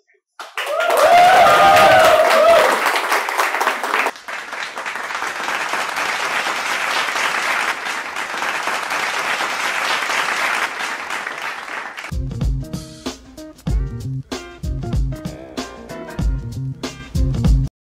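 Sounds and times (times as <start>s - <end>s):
audience applauding: 0.4s - 12.1s.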